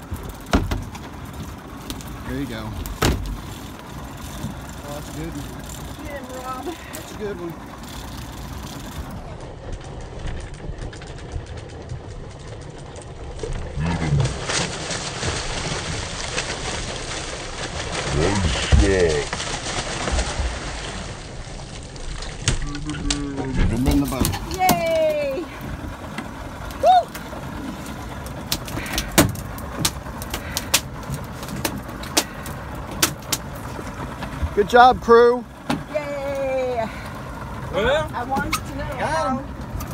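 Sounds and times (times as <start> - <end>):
boat engine idling: 0.0 - 39.9
fish splashing and thrashing: 0.0 - 39.9
wind: 0.0 - 39.9.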